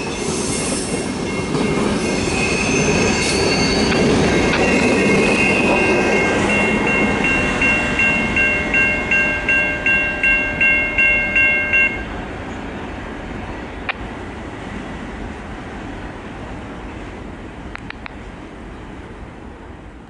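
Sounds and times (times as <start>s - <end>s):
railroad crossing bell ringing: 0.0s - 12.1s
freight train rumbling: 0.0s - 20.0s.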